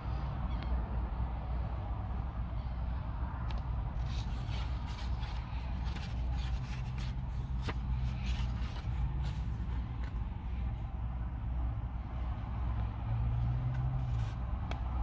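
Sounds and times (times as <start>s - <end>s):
paper pages rustling: 4.0s - 10.2s.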